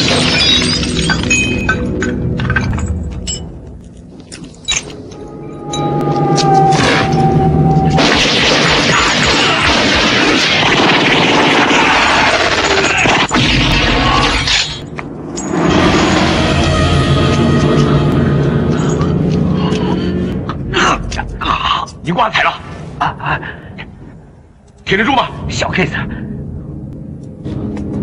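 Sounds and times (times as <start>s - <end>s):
glass shattering: 0.0s - 3.5s
debris clinking: 0.0s - 5.8s
film score: 0.0s - 28.0s
low music drone: 0.8s - 11.0s, 14.8s - 28.0s
continuous gunfire: 8.0s - 14.5s.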